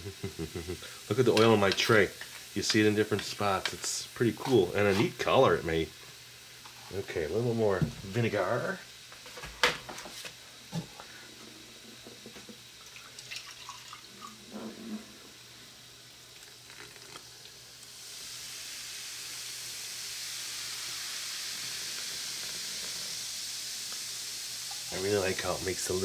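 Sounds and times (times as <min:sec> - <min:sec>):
fizzing hiss: 0:00.0 - 0:26.0
liquid pouring: 0:12.6 - 0:15.5, 0:16.2 - 0:18.8.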